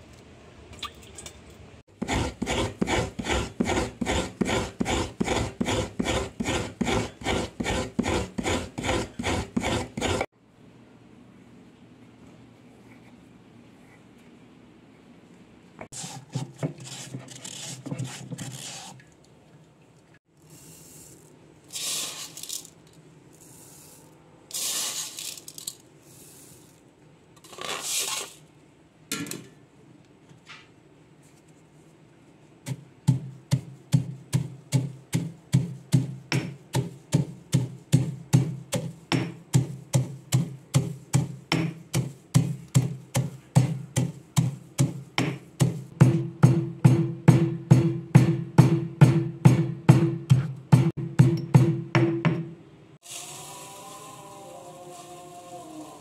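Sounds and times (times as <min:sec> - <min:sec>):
stone pestle pounding in mortar: 0:02.0 - 0:10.2, 0:32.7 - 0:52.5
short scraping and rustling: 0:27.4 - 0:28.5.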